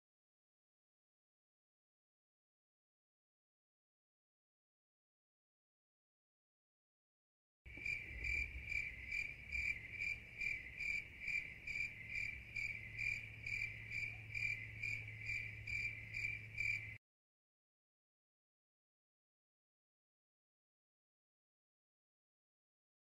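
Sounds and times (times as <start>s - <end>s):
cricket chirping: 7.7s - 17.0s.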